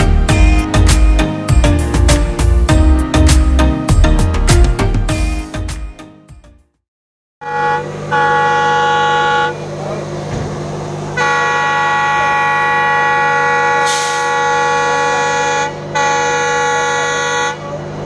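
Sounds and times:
train air horn blasts: 7.4 - 9.7, 11.1 - 17.8
train running hum: 7.5 - 18.0.

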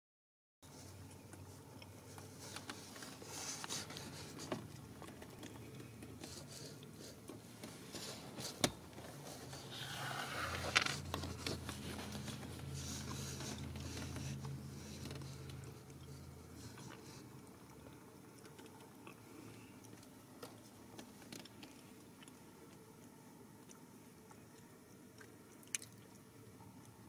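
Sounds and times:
faint low hum: 0.6 - 27.0
kittens rustling and scraping: 0.7 - 17.4.

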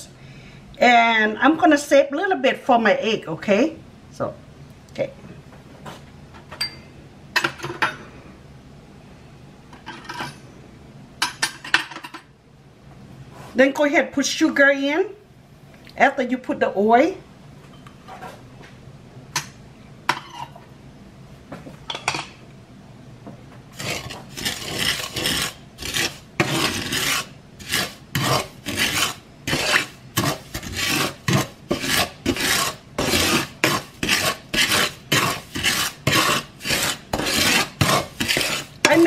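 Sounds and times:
wooden spatula scraping a pan: 23.7 - 39.0.

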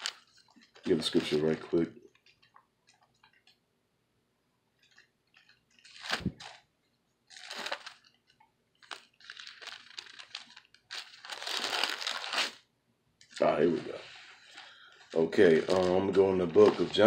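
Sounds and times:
rustling: 7.3 - 12.6, 13.3 - 17.0.

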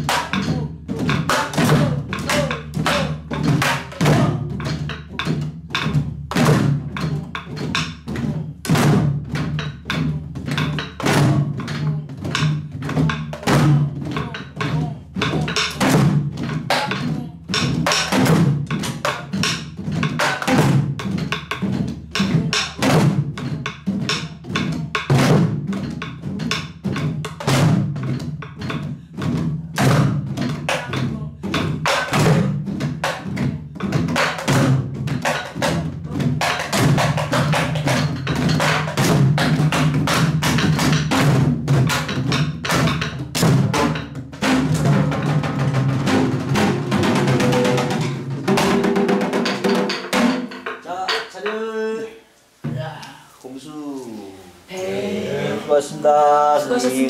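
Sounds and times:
palms beating drumheads: 0.0 - 51.8
barrel drums playing fast rhythm: 0.0 - 51.9
sticks striking wooden drum shells: 9.4 - 28.9, 29.8 - 45.7, 46.3 - 51.8.

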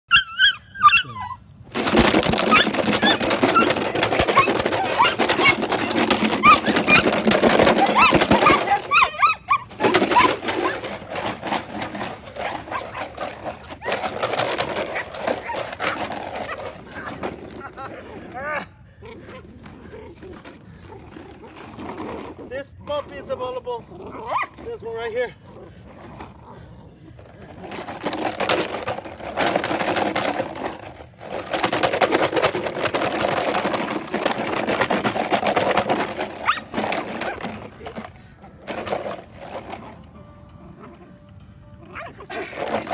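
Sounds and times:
puppies yelping and whining: 0.1 - 22.3, 23.9 - 24.7, 32.4 - 40.1, 40.7 - 42.9
rustling and clattering: 1.7 - 42.9.

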